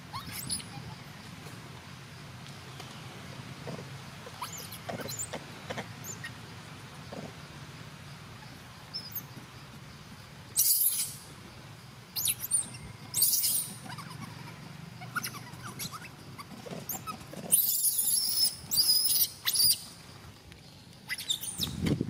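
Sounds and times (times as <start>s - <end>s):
monkeys squeaking and chirping: 0.1s - 1.1s, 4.2s - 6.4s, 8.4s - 9.3s, 10.6s - 11.3s, 12.2s - 20.0s, 21.0s - 21.8s.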